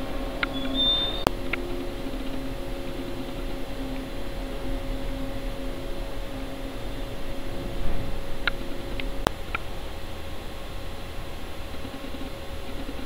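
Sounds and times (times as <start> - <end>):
faint high chirps: 0.0 - 1.3
ventilation hum: 0.0 - 13.0.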